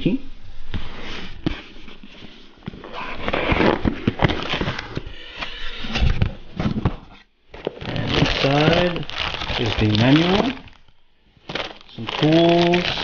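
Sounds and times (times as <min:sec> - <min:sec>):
packing material rustling: 0:07.5 - 0:13.0.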